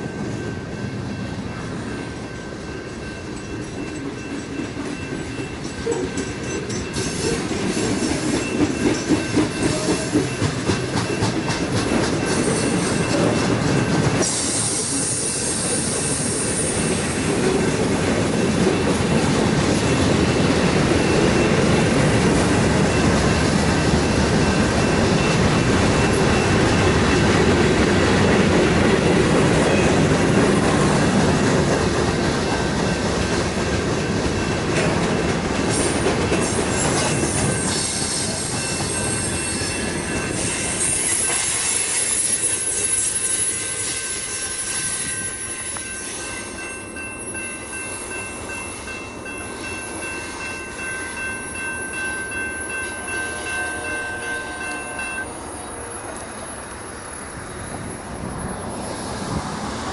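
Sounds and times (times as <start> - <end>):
freight cars rolling on rails: 0.0 - 59.9
high-pitched wheel squeal: 40.4 - 46.4.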